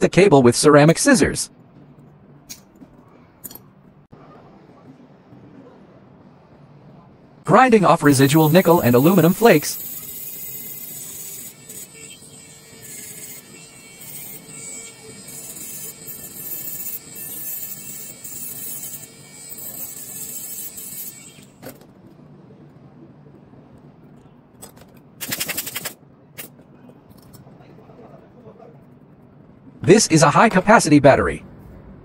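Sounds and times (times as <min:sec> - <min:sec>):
electric rotary grinder grinding: 0:08.1 - 0:21.5.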